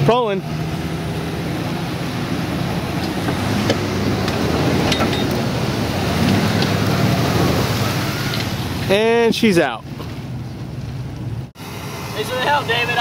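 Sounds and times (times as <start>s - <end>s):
engines running under load: 0.0s - 13.0s.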